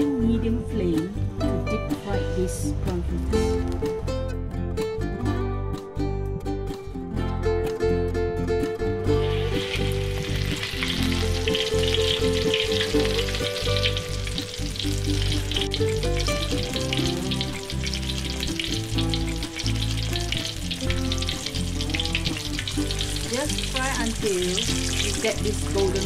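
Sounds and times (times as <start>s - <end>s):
crackling sizzle of deep-frying: 9.2s - 26.0s.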